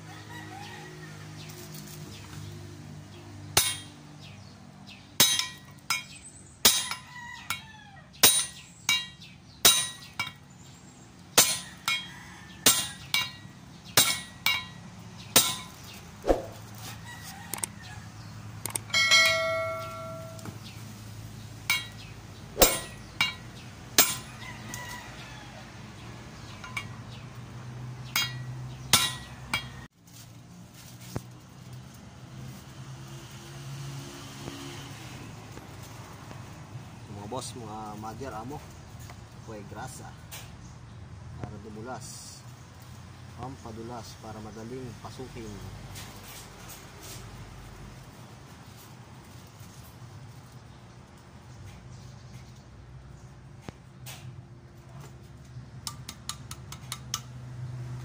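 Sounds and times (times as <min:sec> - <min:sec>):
rooster crowing: 0:00.0 - 0:01.5, 0:06.9 - 0:08.2, 0:11.6 - 0:13.0, 0:16.8 - 0:18.2, 0:24.2 - 0:26.0
hammer striking metal: 0:03.6 - 0:04.0, 0:05.2 - 0:07.6, 0:08.2 - 0:10.4, 0:11.4 - 0:16.6, 0:18.9 - 0:20.6, 0:21.7 - 0:24.4, 0:26.6 - 0:27.0, 0:28.1 - 0:29.9.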